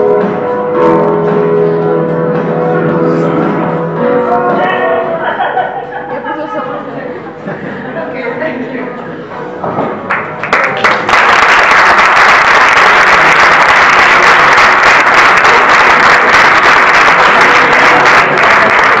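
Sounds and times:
audience applauding: 10.1 - 19.0.

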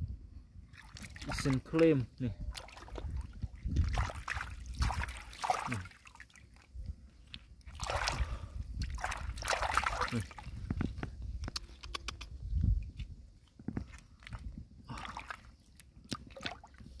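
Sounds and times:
sloshing in muddy water: 0.6 - 11.0, 13.8 - 17.0
small wet clicks: 6.5 - 7.7, 10.6 - 14.5, 15.2 - 17.0.

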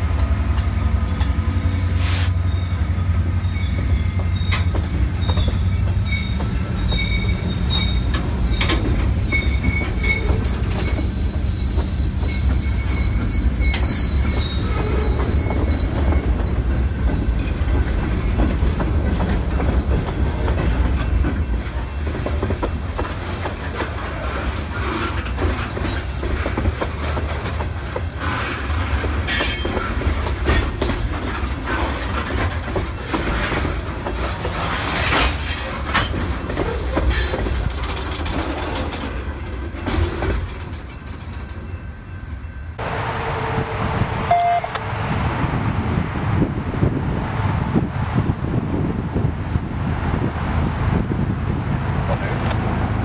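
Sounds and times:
train wheels rumbling on rail: 0.0 - 53.0
high-pitched wheel squeal: 1.6 - 17.6, 32.2 - 34.0
wheels clicking over rail joints: 3.4 - 42.4.

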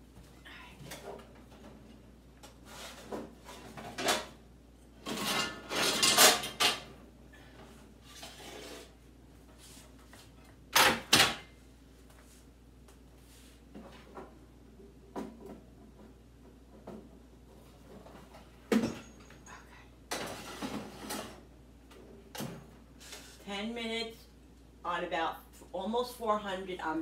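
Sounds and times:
kitchen clatter and knocks: 3.0 - 4.4, 5.0 - 7.0, 10.7 - 11.5, 17.8 - 19.5, 20.1 - 21.4.

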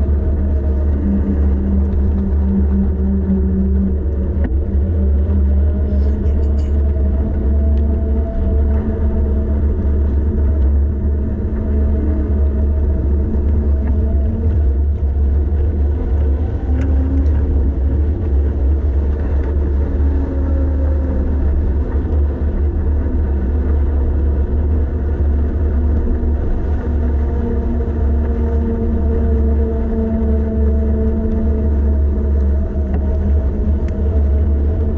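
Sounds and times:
wind buffeting microphone: 0.0 - 34.9.

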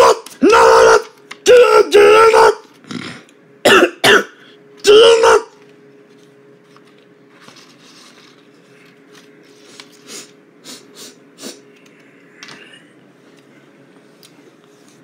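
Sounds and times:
faint steady hum: 0.0 - 15.0
cards rustling and tapping: 5.6 - 10.1.

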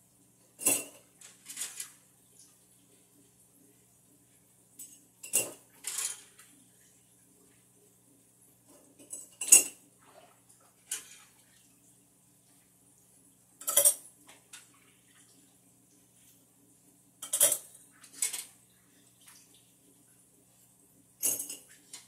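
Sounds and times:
faint low hum: 0.0 - 22.0
dishes and cutlery clinking: 0.6 - 2.0, 4.8 - 6.5, 8.9 - 9.8, 10.8 - 11.4, 13.6 - 14.7, 17.2 - 18.6, 21.2 - 22.0.

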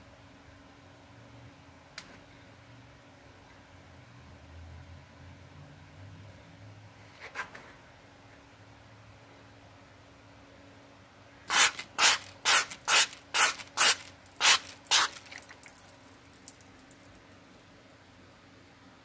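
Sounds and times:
spray bottle squirting: 11.5 - 15.6.

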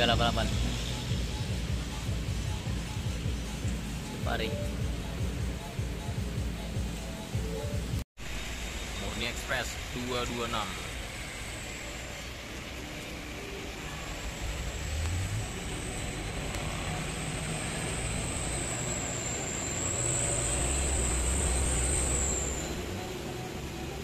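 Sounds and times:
tyres hissing on wet road: 8.2 - 24.0
minibus engine climbing: 10.9 - 24.0.

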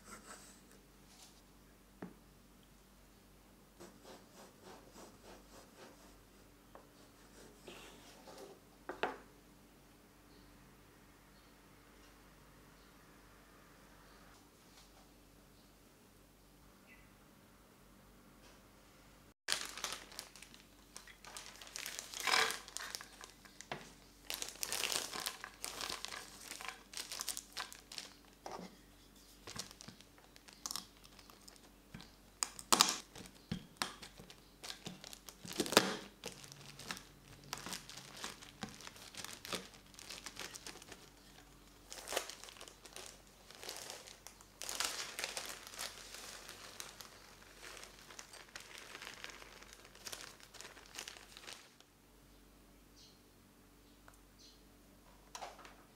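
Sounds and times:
plastic bag crinkling: 19.5 - 28.5, 29.3 - 51.8.

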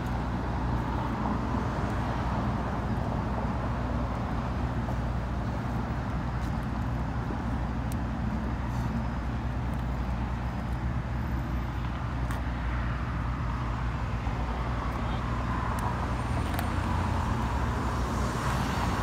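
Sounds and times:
hiss of passing cars: 8.1 - 10.4, 12.4 - 19.0.

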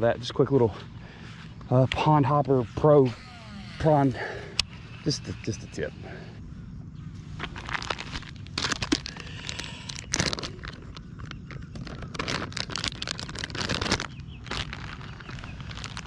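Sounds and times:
plastic packet crinkling: 7.4 - 16.0.

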